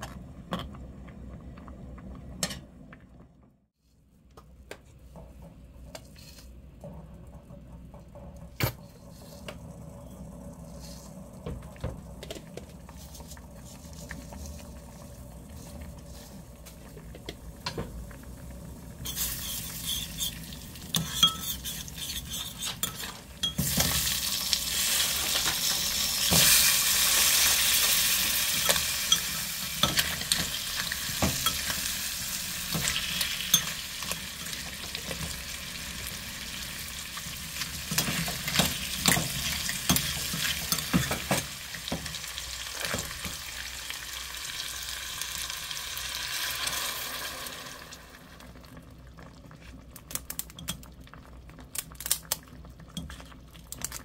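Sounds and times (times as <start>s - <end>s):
hot oil sizzling: 17.7s - 48.5s.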